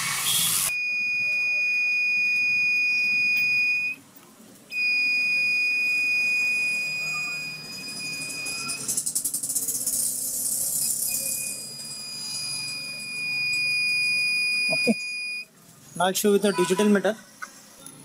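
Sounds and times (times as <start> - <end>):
multimeter continuity beep: 0.6 - 4.0, 4.7 - 9.0, 10.7 - 15.5.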